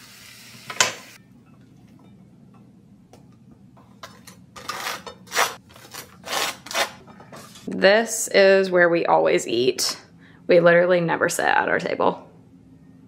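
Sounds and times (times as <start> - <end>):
food sizzling in a frying pan: 0.0 - 1.2
knife scraping toast: 4.6 - 5.6.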